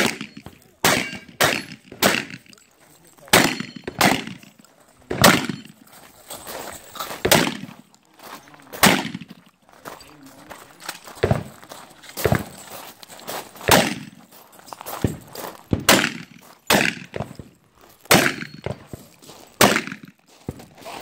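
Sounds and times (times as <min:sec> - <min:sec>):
gunshot echo: 0:00.0 - 0:02.5, 0:03.3 - 0:04.5, 0:05.1 - 0:05.8, 0:07.2 - 0:07.7, 0:08.8 - 0:09.4, 0:13.7 - 0:14.2, 0:15.1 - 0:17.3, 0:18.1 - 0:18.8, 0:19.6 - 0:20.1
rifle gunshots: 0:00.0 - 0:02.5, 0:03.3 - 0:05.8, 0:07.2 - 0:07.8, 0:08.8 - 0:09.4, 0:13.7 - 0:14.2, 0:15.7 - 0:17.4, 0:18.1 - 0:18.8, 0:19.6 - 0:20.1.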